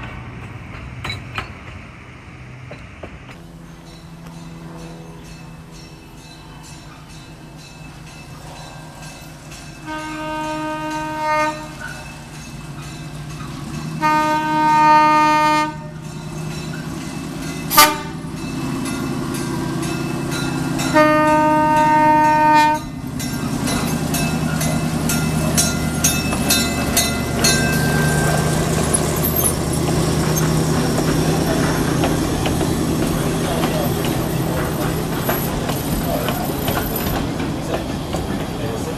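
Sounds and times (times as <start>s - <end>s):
locomotive engine running: 0.0s - 38.9s
locomotive horn blasts: 9.8s - 11.9s, 14.0s - 16.0s, 17.7s - 18.3s, 20.8s - 23.0s
wheels clicking over rails: 16.0s - 38.9s.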